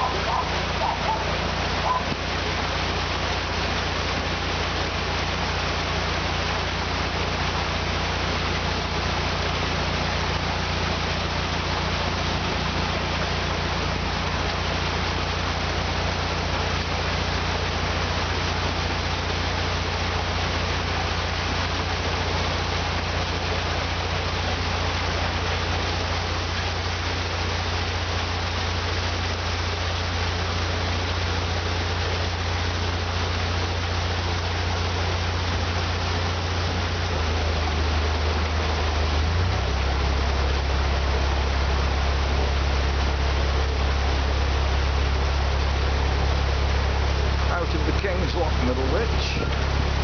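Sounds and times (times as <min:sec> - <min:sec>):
water rushing through lock: 0:00.0 - 0:50.0
diesel engine idling: 0:34.1 - 0:50.0.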